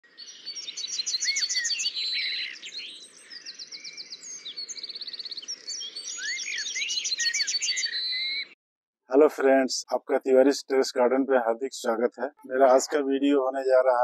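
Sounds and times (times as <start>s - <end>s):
birds chirping and calling: 0.1s - 8.6s, 11.9s - 14.0s
fast bird trill: 0.2s - 8.5s.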